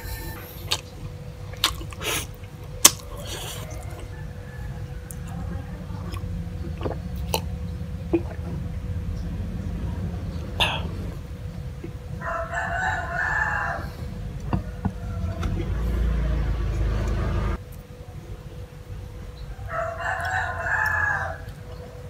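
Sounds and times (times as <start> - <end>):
rooster crowing: 0.0 - 0.7, 3.1 - 6.1, 12.1 - 17.6, 19.5 - 22.0
steady low hum: 0.0 - 22.0.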